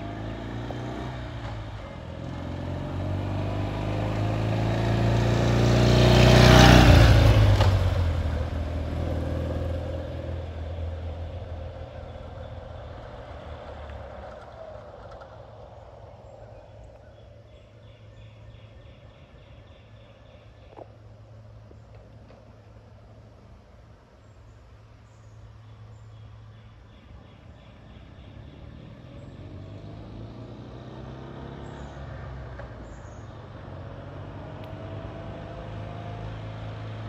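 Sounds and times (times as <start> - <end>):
motorcycle engine passing by: 0.0 - 20.8, 26.9 - 37.0.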